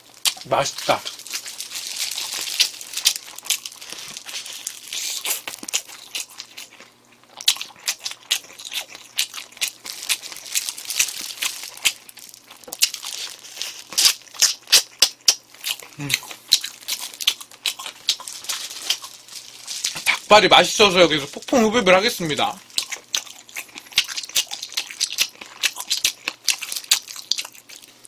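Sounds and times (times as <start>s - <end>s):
plastic glove and foil crinkling: 0.0s - 6.6s, 9.4s - 14.9s, 15.7s - 22.8s
wet chewing and lip-smacking: 0.2s - 20.3s, 22.6s - 28.0s.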